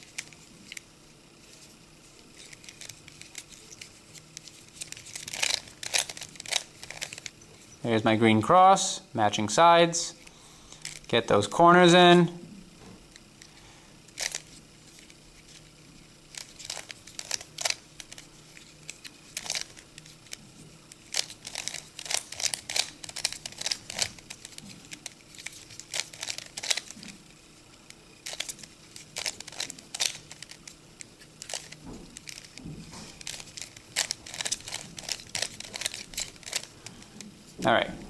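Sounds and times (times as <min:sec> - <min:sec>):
puzzle cube clicking: 0:02.4 - 0:07.3, 0:16.3 - 0:20.4, 0:21.1 - 0:27.1, 0:28.2 - 0:32.6, 0:33.2 - 0:36.7.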